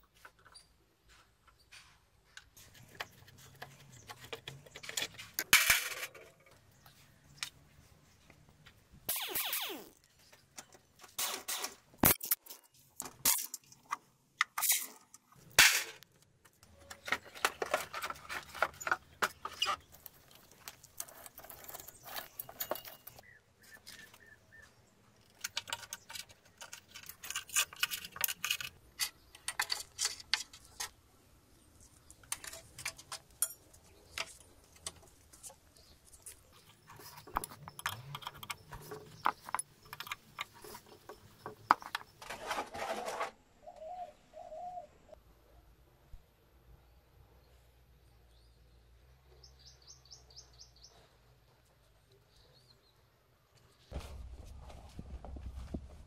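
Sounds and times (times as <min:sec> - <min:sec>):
metal and plastic parts clattering: 0:02.5 - 0:06.7, 0:10.3 - 0:23.2, 0:25.2 - 0:31.0, 0:32.0 - 0:43.4.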